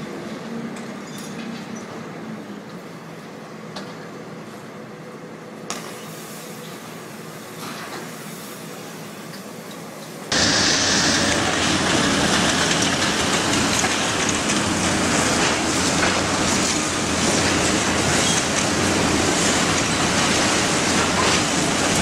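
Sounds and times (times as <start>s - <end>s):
faint machine and site noise: 0.0s - 22.0s.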